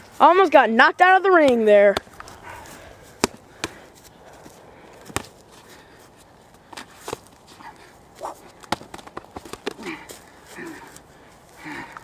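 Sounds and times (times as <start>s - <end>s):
gloved punches landing: 3.2s - 3.8s, 8.2s - 10.1s.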